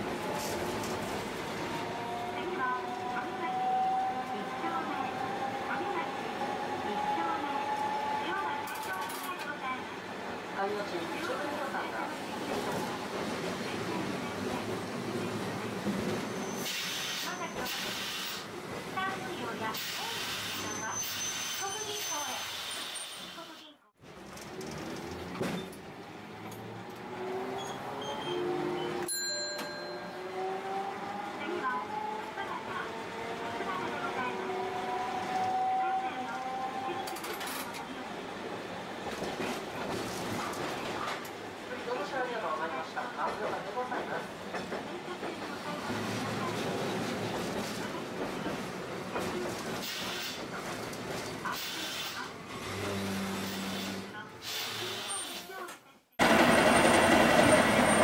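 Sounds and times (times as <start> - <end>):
tram rumbling on track: 0.0 - 22.3, 24.0 - 55.0, 56.2 - 58.0
brief hisses: 53.5 - 55.5.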